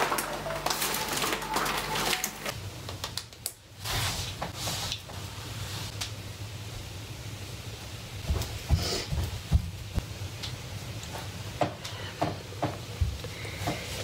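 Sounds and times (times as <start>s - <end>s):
plastic bags rustling: 0.0s - 2.6s
room hum: 0.0s - 14.0s.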